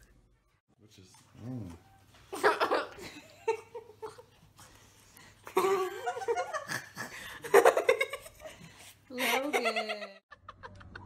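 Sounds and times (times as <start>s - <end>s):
people laughing: 5.5s - 11.0s.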